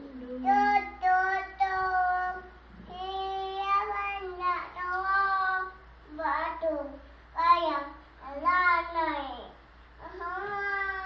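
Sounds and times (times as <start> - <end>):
toddler girl singing: 0.4 - 11.0.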